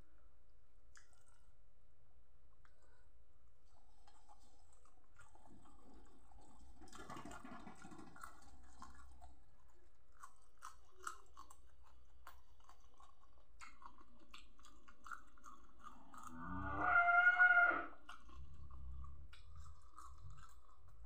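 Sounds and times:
person chewing food: 0:00.9 - 0:01.6, 0:02.6 - 0:17.2, 0:17.9 - 0:21.0
crunching and clicks: 0:04.0 - 0:16.6, 0:18.0 - 0:21.0.

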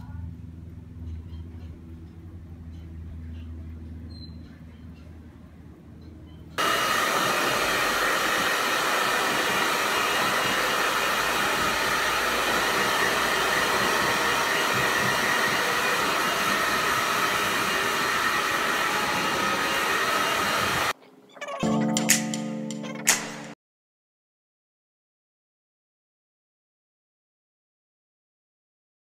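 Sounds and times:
hair dryer whirring: 0:06.6 - 0:21.0.

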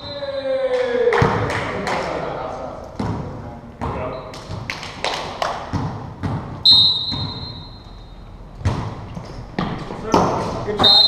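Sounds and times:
referee's whistle: 0:00.0 - 0:00.3, 0:06.6 - 0:08.0, 0:10.8 - 0:11.0
volleyball hits and thumps: 0:01.1 - 0:01.8, 0:03.0 - 0:07.7, 0:08.6 - 0:11.0.

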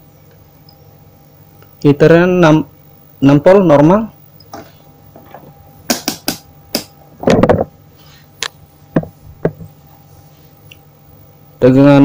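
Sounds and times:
multimeter probe clicks and taps: 0:05.9 - 0:06.9
heavier rustling knock: 0:07.2 - 0:07.7, 0:08.9 - 0:09.7.

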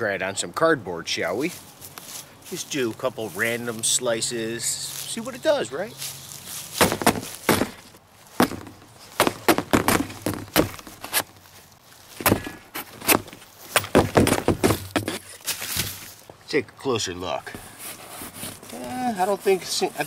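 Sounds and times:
knife striking cardboard: 0:06.8 - 0:11.3, 0:12.2 - 0:15.2.

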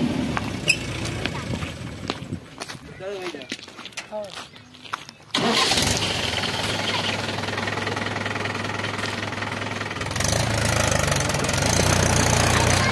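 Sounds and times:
tractor diesel engine running: 0:00.0 - 0:02.5, 0:05.3 - 0:12.9.

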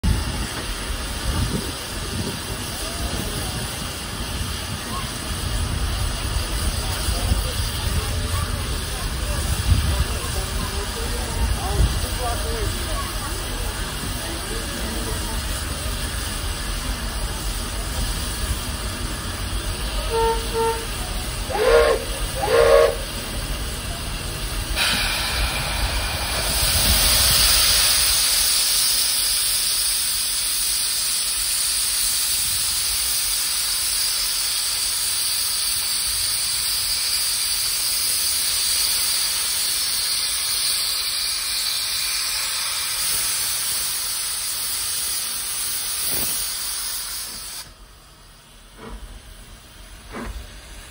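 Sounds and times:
steam hissing from drain cocks: 0:11.4 - 0:47.8
steam whistle toots: 0:19.9 - 0:23.2.

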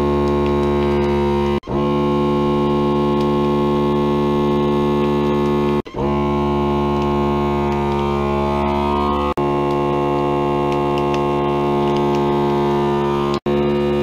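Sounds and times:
vacuum sealer pump humming: 0:00.0 - 0:14.0.

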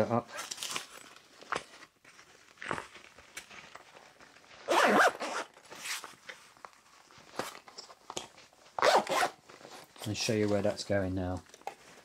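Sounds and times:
zipper being pulled closed: 0:04.6 - 0:06.1, 0:08.8 - 0:09.4.

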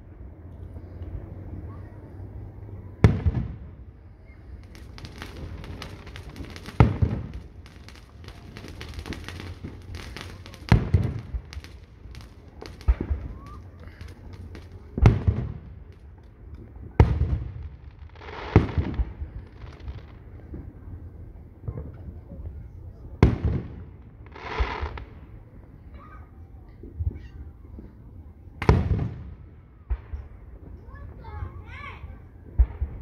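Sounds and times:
firework pops and crackles: 0:03.0 - 0:03.8, 0:04.5 - 0:25.4, 0:26.7 - 0:31.4, 0:32.5 - 0:33.0
firework shells booming: 0:04.6 - 0:20.7, 0:28.6 - 0:30.7.

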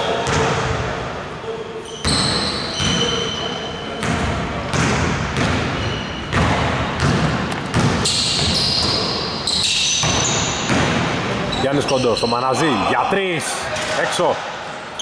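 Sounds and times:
sneakers squeaking: 0:00.0 - 0:12.6
basketball bouncing on wooden court: 0:00.2 - 0:00.8, 0:04.0 - 0:11.2.

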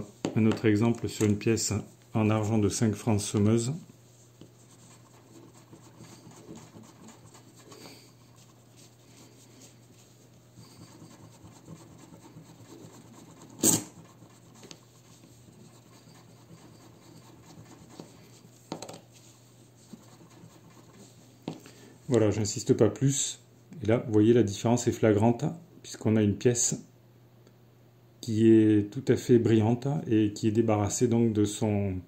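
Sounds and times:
eraser scratching on a coin: 0:04.4 - 0:09.3, 0:10.6 - 0:18.4, 0:19.8 - 0:21.0.

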